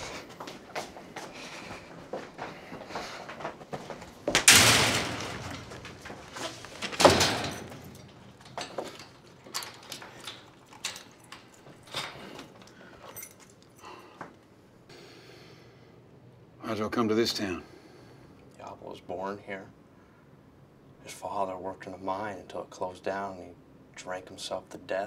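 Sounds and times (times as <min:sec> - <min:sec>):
doors banging: 0:04.3 - 0:12.2
cell door clicks and knocks: 0:06.9 - 0:08.8.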